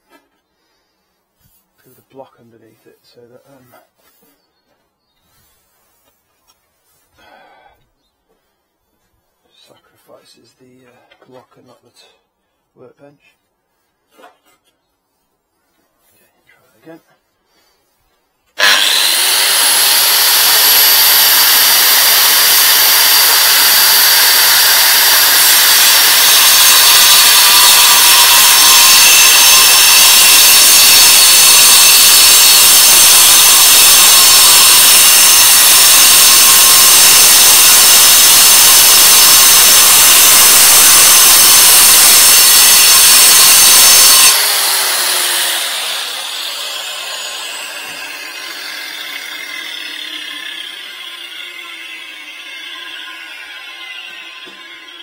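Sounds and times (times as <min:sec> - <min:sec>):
angle grinder cutting concrete: 0:18.6 - 0:55.0
grinder disc spinning down: 0:18.6 - 0:55.0.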